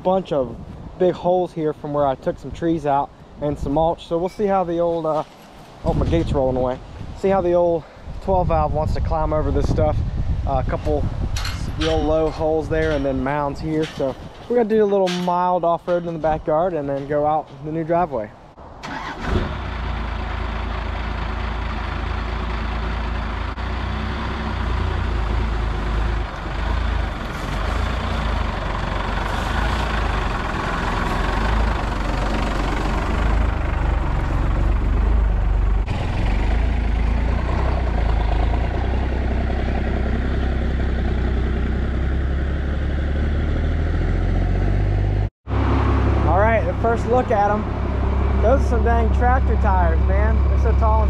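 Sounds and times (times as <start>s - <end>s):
diesel truck engine running: 18.8s - 51.0s.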